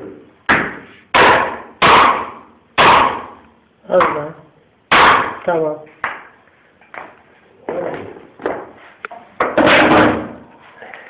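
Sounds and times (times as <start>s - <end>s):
laminate planks knocking on floor: 7.7s - 8.8s.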